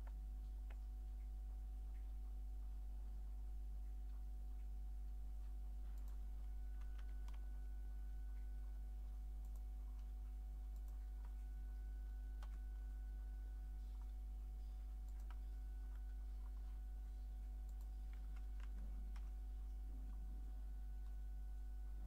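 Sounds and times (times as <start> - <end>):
low electrical hum: 0.0 - 22.0
faint clicks: 5.4 - 7.5, 9.4 - 10.1, 15.0 - 16.8, 17.5 - 20.2.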